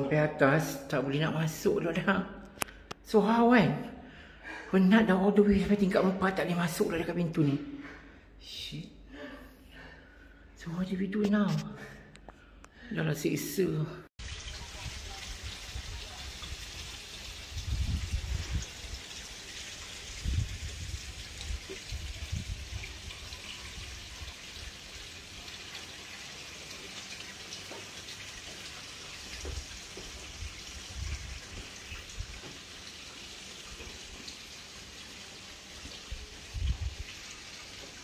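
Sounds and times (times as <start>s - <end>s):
water feature splashing: 14.2s - 38.0s.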